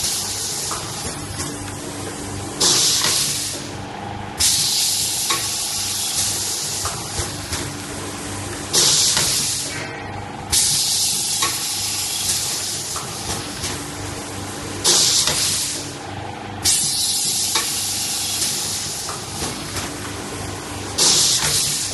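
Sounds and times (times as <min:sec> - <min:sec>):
machine hum: 0:00.0 - 0:21.9
pneumatic air hisses: 0:02.6 - 0:03.6, 0:04.4 - 0:07.0, 0:10.5 - 0:12.9, 0:14.8 - 0:15.9, 0:21.0 - 0:21.9.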